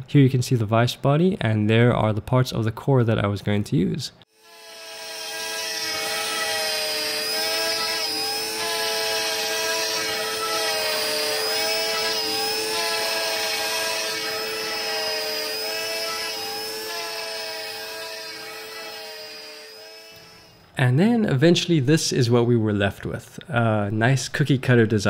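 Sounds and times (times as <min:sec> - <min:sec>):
router spindle milling whine: 0:04.4 - 0:20.6.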